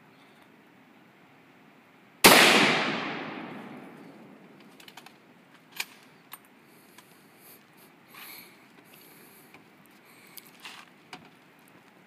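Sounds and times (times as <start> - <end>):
rifle shot echo: 2.2 - 4.5.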